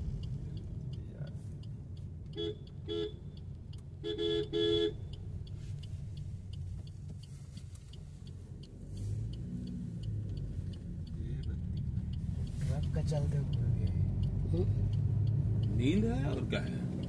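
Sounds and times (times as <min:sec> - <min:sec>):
car engine and road noise: 0:00.0 - 0:17.0
car horn beeping: 0:02.3 - 0:03.3, 0:04.0 - 0:05.1.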